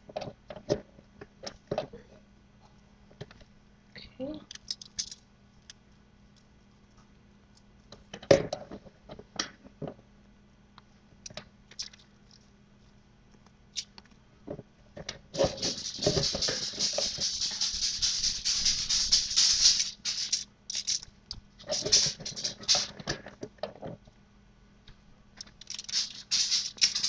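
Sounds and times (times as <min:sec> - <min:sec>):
dry rustling: 0:15.3 - 0:23.2, 0:25.5 - 0:27.0.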